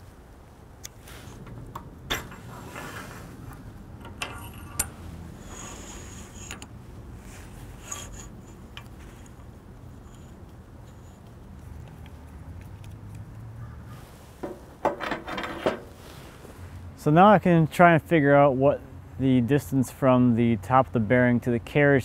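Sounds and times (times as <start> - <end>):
steel parts clinking: 0.8 - 12.1.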